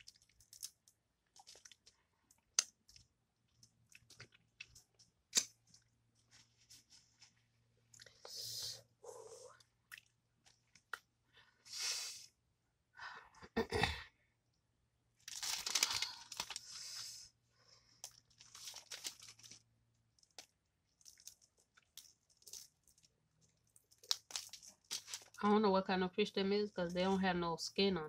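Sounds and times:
crunching fried fish: 0.0 - 3.0, 15.2 - 16.7, 18.0 - 19.6, 20.2 - 25.4.

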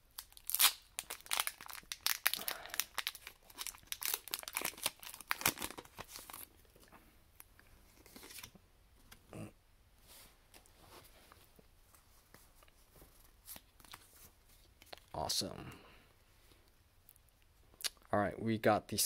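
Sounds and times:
plastic wrapper tearing and crinkling: 0.1 - 6.6
cards rustling: 1.0 - 6.9, 7.9 - 8.6.

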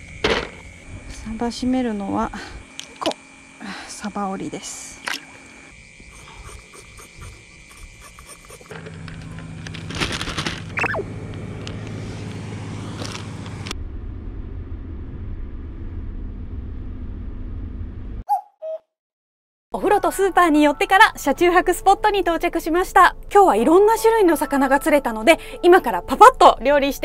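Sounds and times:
van engine and road hum: 8.7 - 18.2.

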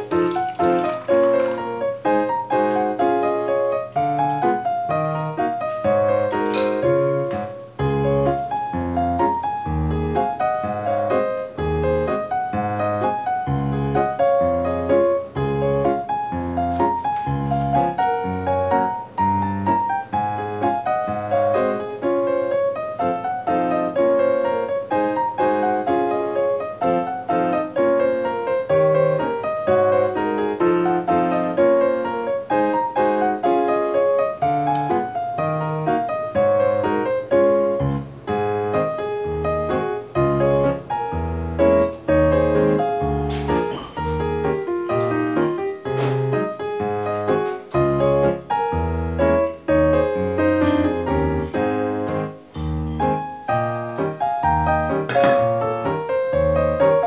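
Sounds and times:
piano music: 0.0 - 57.0.

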